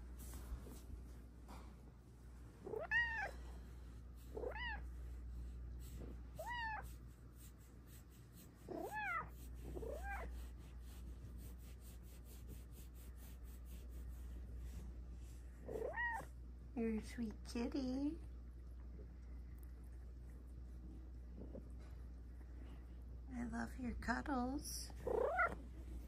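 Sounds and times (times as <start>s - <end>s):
cat meowing: 2.7s - 3.4s, 4.4s - 4.8s, 6.4s - 6.9s, 8.7s - 10.3s, 15.7s - 16.3s, 25.0s - 25.6s.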